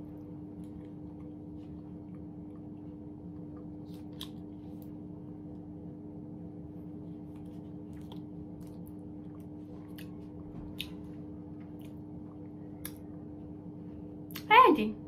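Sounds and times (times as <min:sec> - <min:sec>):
steady low hum: 0:00.0 - 0:15.0
squishy chewing: 0:00.2 - 0:05.0, 0:07.0 - 0:13.2.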